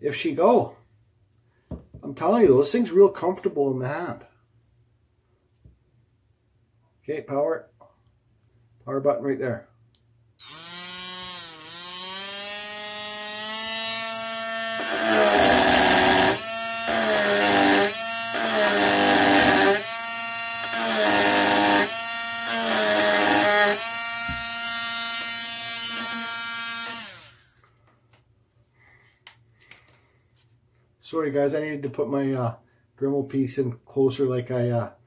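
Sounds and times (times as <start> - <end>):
rotary tool whining: 10.4 - 27.6
rough grinding into wood: 10.6 - 19.9, 20.6 - 27.3.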